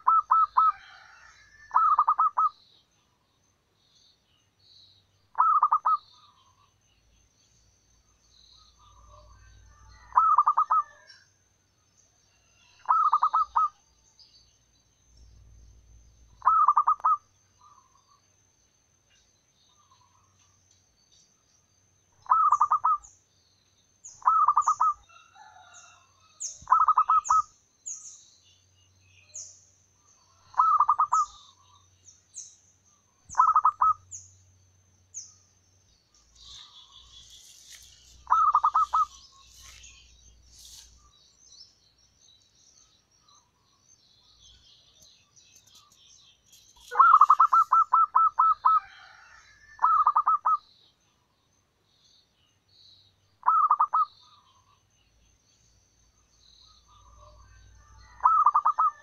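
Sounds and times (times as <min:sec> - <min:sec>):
dove cooing: 0:00.0 - 0:02.5, 0:05.4 - 0:06.0, 0:10.0 - 0:11.1, 0:12.8 - 0:13.8, 0:16.4 - 0:17.2, 0:26.7 - 0:27.4, 0:30.4 - 0:31.4, 0:33.3 - 0:34.0, 0:38.2 - 0:39.2, 0:46.9 - 0:50.6, 0:53.4 - 0:54.1, 0:58.0 - 0:59.0
small bird chirping: 0:00.0 - 0:11.3, 0:12.0 - 0:18.4, 0:19.1 - 0:59.0.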